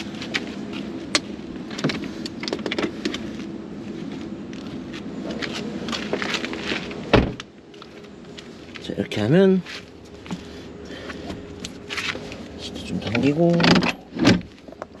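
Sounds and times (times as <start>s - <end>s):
car door shutting: 7.1s - 7.5s, 13.5s - 14.5s.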